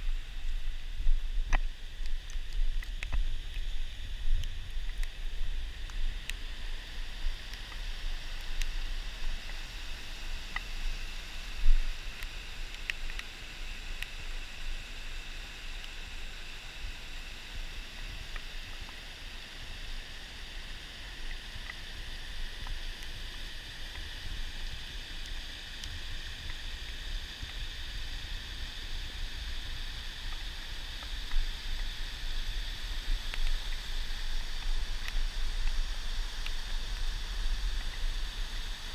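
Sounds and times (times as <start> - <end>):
wind rumble on microphone: 0.0 - 14.0.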